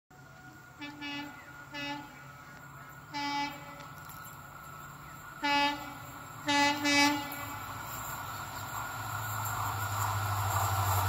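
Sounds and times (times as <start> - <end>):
distant train horn blasts: 0.3 - 4.1, 5.3 - 7.8.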